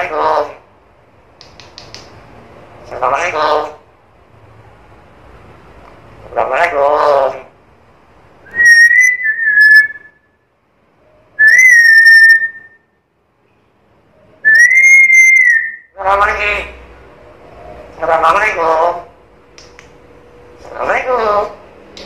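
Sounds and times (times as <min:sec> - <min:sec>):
parrot whistling: 0:08.4 - 0:10.4, 0:11.4 - 0:12.9, 0:14.4 - 0:16.0.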